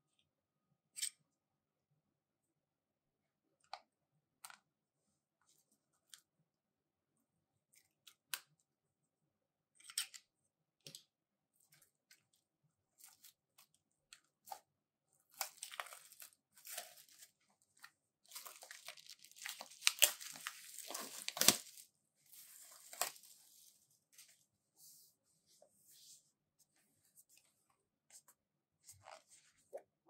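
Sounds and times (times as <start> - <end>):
shrink wrap crinkling and tearing: 15.3 - 23.4.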